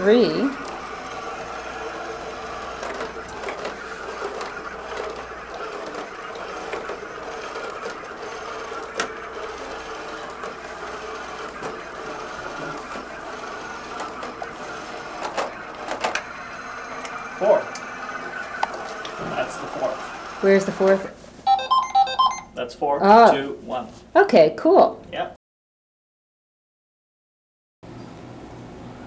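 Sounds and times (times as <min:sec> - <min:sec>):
robot motors whirring: 0:00.2 - 0:21.1.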